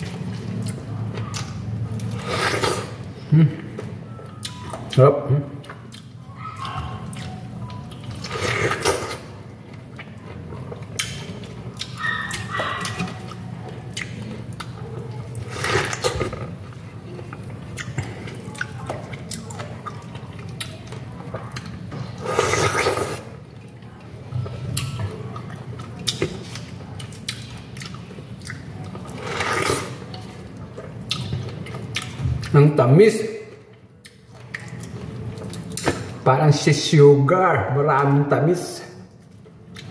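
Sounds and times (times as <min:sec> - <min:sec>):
biting and chewing pineapple: 0:03.7 - 0:32.6.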